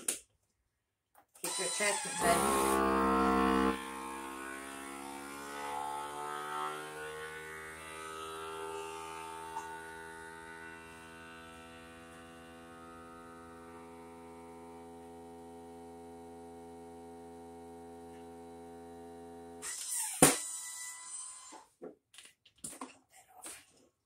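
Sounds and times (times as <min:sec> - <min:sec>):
vacuum pump humming: 0:01.8 - 0:06.8, 0:07.6 - 0:19.6.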